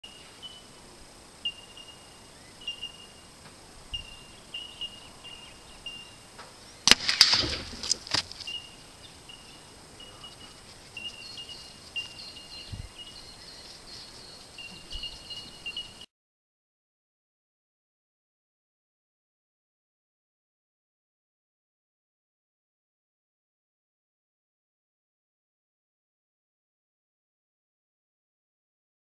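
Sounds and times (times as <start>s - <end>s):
birds chirping: 0.0s - 16.1s
rifle shot crack: 6.8s - 8.4s.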